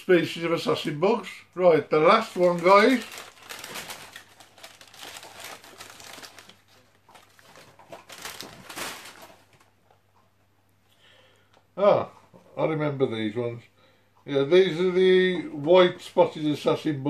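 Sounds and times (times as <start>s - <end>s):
paper crinkling and rustling: 2.0s - 9.7s.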